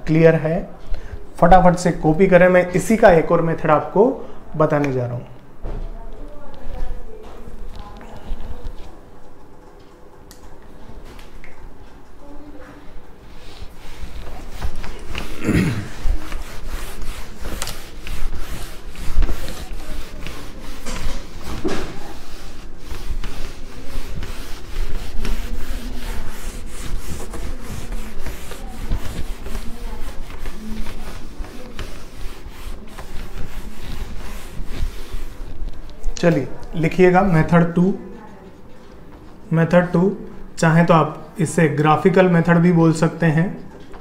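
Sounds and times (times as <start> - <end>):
cloth wiping a whiteboard: 13.2 - 37.9.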